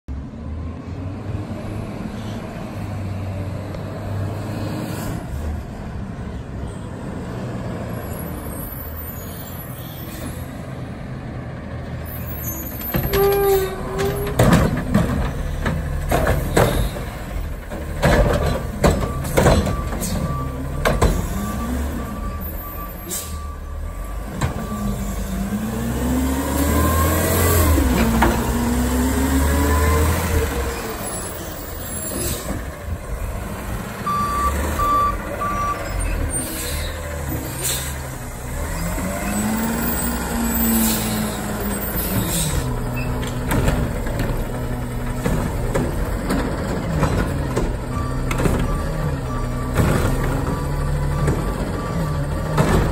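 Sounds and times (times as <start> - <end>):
reversing beeps: 19.0 - 25.2, 34.0 - 36.2, 47.9 - 52.3
garbage truck engine revving: 23.6 - 52.9.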